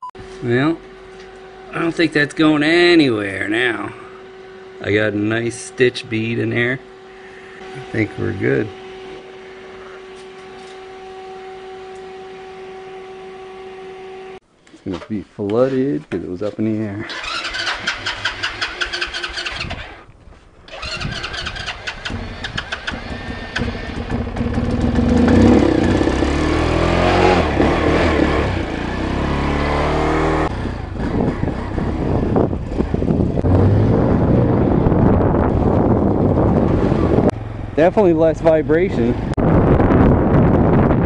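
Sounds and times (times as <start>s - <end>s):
motorcycle engine revving: 0.2s - 14.4s, 17.0s - 20.1s, 20.7s - 41.0s
motorcycle engine cranking: 17.0s - 20.1s, 20.7s - 26.2s.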